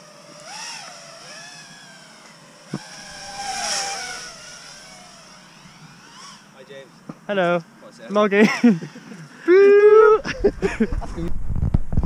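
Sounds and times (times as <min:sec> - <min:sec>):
drone motors whining: 0:00.0 - 0:07.1.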